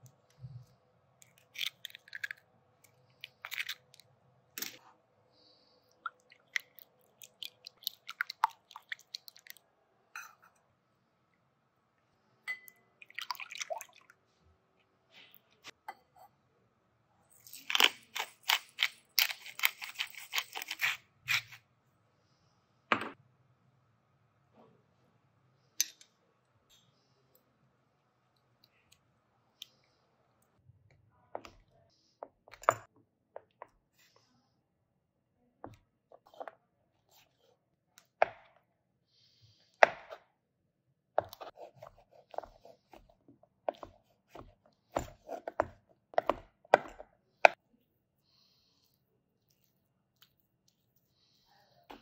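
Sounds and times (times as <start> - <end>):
spoon and whisk clinking glass bowl: 10.2 - 10.6, 12.5 - 12.9.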